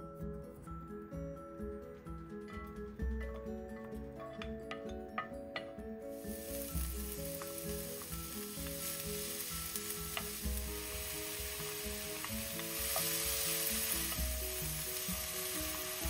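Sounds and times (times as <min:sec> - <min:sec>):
soft background music: 0:00.0 - 0:16.0
wooden spoon tapping: 0:04.3 - 0:05.8, 0:10.1 - 0:10.4, 0:11.5 - 0:14.4
food sizzling in a frying pan: 0:06.1 - 0:16.0.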